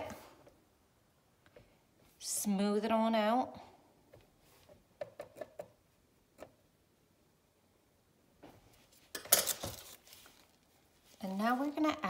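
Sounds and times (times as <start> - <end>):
plastic piping bag rustling: 8.9 - 12.0.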